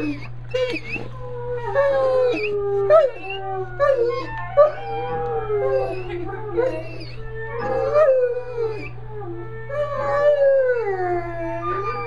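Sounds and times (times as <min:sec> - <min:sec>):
dog howling: 0:00.0 - 0:12.0.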